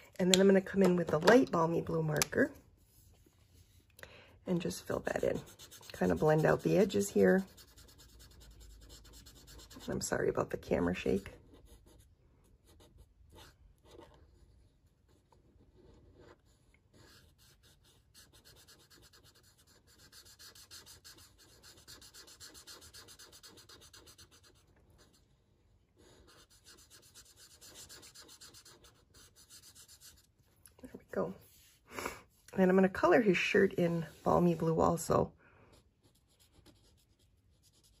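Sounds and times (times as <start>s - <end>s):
marker scratching on card: 5.0s - 10.0s, 11.1s - 25.2s, 26.0s - 30.3s, 36.0s - 38.0s.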